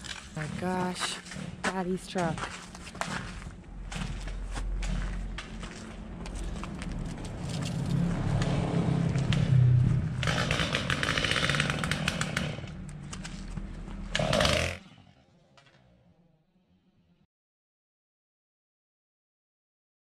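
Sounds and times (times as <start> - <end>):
dense crackling crunching noise: 0.0 - 14.2
small petrol engine running: 0.0 - 16.2.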